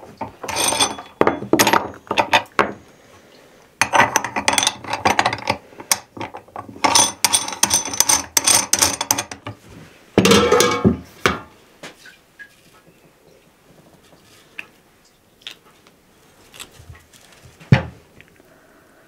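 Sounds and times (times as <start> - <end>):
metal parts clinking and rattling: 0.4 - 2.6, 3.8 - 9.5.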